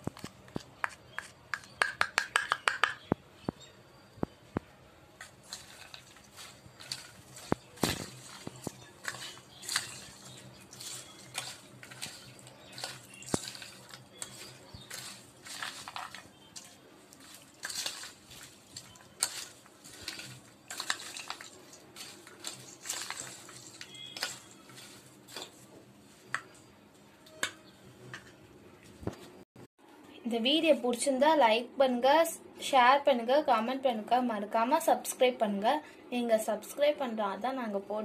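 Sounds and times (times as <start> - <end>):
legumes rattling: 5.2 - 25.7
spoon clinking and scraping bowl: 5.4 - 25.6.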